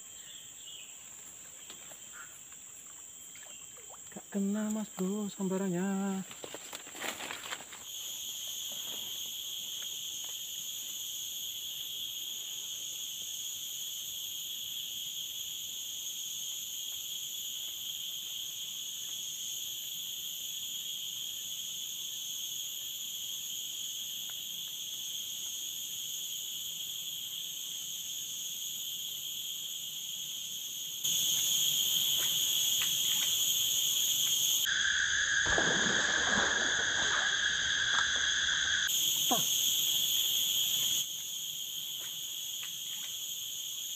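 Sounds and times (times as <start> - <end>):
shrill insect chorus: 0.0 - 43.9.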